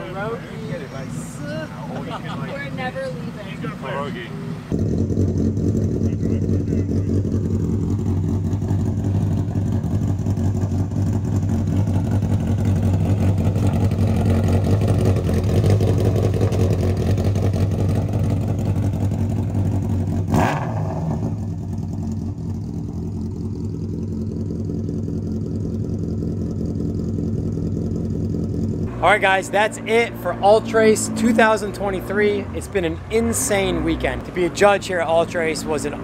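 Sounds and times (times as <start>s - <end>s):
motorcycle engine idling: 4.4s - 20.3s, 21.0s - 32.0s.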